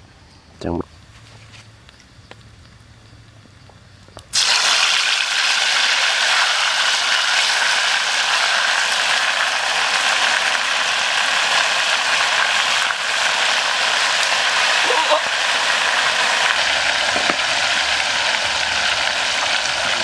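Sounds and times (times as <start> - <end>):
meat sizzling in hot oil: 4.3 - 20.0.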